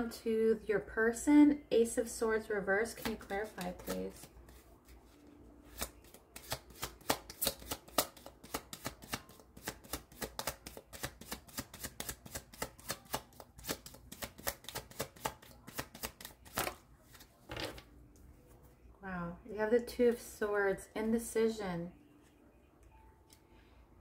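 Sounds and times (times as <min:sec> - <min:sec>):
cards being shuffled: 0:03.0 - 0:17.9.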